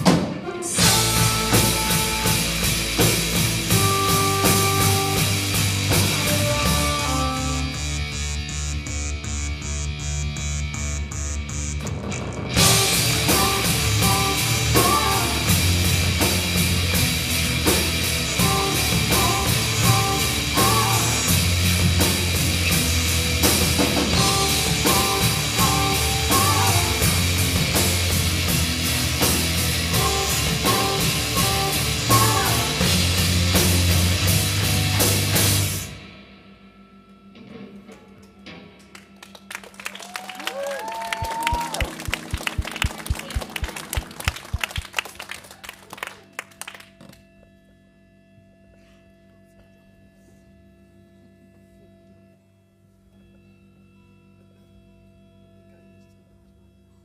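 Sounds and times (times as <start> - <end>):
drum kit: 0.0 - 36.3, 40.1 - 45.2
bass guitar: 0.0 - 47.4
electric guitar: 0.0 - 47.4
audience clapping: 38.8 - 47.3.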